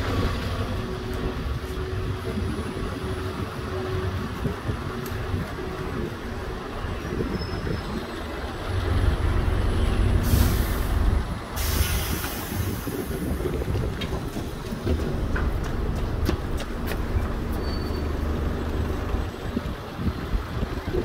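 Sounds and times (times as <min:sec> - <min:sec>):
heavy vehicle engine running: 0:00.0 - 0:21.0
air-brake hiss: 0:10.2 - 0:13.2.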